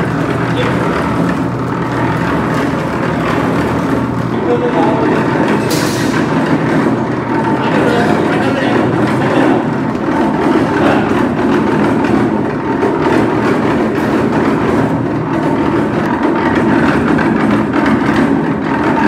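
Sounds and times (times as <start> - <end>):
kitchen machinery rattling drone: 0.0 - 19.0.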